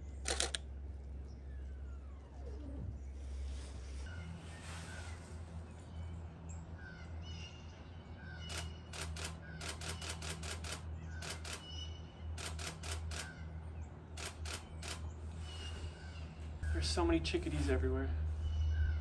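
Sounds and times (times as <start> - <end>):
low hum: 0.0 - 19.0
small birds chirping: 0.0 - 19.0
camera shutter bursts: 0.2 - 0.6, 8.5 - 11.7, 12.4 - 13.4, 14.2 - 15.0.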